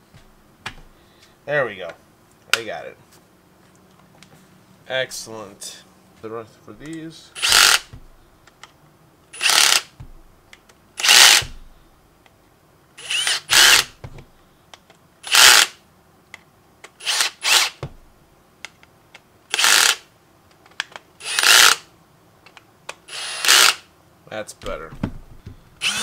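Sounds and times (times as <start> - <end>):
cordless drill short bursts: 7.4 - 7.9, 9.4 - 10.0, 11.0 - 11.6, 13.0 - 14.0, 15.2 - 15.8, 17.0 - 17.8, 19.5 - 20.1, 21.2 - 21.9, 23.1 - 23.9, 25.8 - 26.0.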